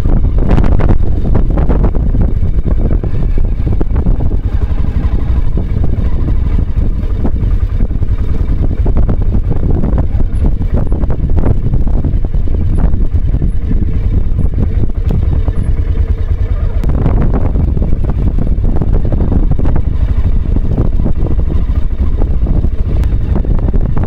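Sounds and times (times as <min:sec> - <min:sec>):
motorcycle engine running: 0:00.0 - 0:24.0
wind noise on microphone: 0:00.0 - 0:24.0.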